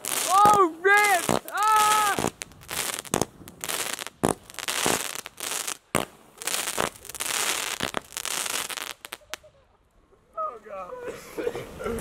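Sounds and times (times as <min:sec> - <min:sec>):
firework launch pops: 0:00.0 - 0:05.3, 0:05.9 - 0:09.3
firework tails hissing and crackling: 0:00.0 - 0:09.5.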